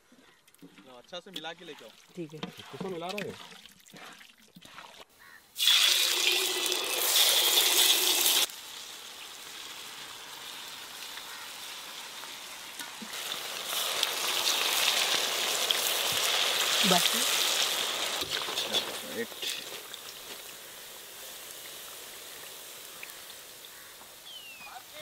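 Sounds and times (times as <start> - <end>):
fish deep-frying in oil: 5.2 - 25.0.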